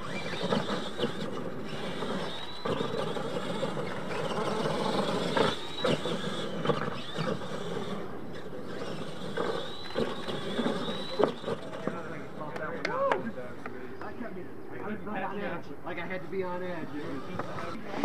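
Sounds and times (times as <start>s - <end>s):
tyres churning loose dirt: 0.0s - 13.6s
whining electric motor: 0.0s - 13.7s, 16.3s - 18.0s.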